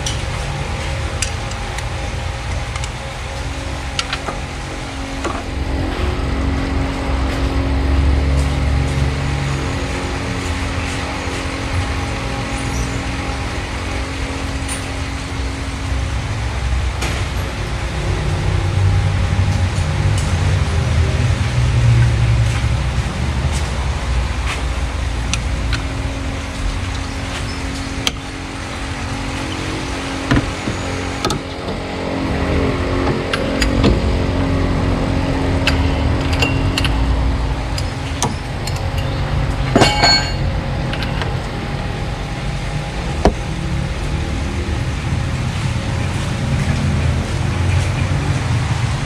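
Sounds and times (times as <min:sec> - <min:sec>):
vehicle engine running: 0:00.0 - 0:49.0
metal clinks of wrench: 0:39.8 - 0:40.5.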